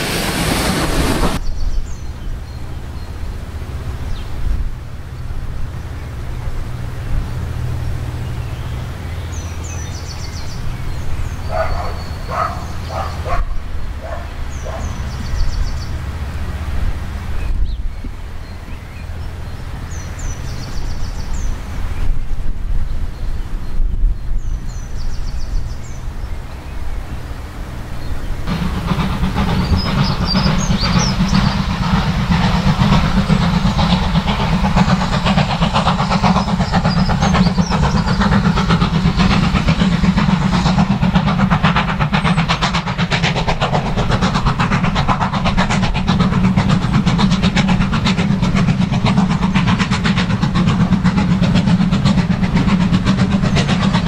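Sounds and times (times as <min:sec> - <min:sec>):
steam locomotive working hard: 0:00.0 - 0:54.0
wind on microphone: 0:16.8 - 0:18.8, 0:20.4 - 0:26.1.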